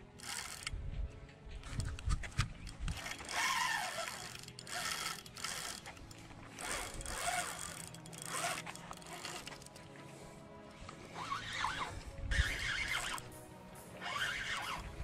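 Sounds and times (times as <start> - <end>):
fishing reel whirring: 0.2 - 0.7, 2.7 - 9.8, 11.2 - 13.3, 14.0 - 15.0.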